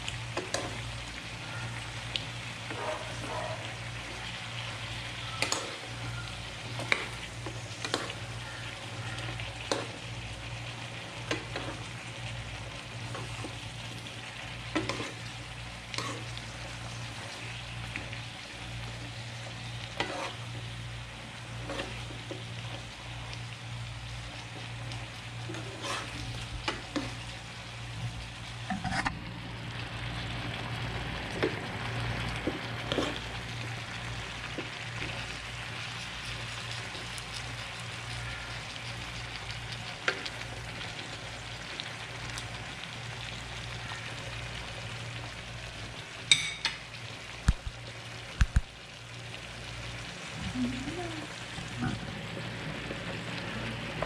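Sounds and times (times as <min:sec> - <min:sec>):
food sizzling in a frying pan: 0:00.0 - 0:54.0
spatula scraping a pan: 0:14.7 - 0:15.3, 0:15.9 - 0:16.3, 0:19.8 - 0:20.5, 0:21.6 - 0:22.3, 0:25.5 - 0:27.2, 0:28.7 - 0:29.1, 0:32.9 - 0:33.2.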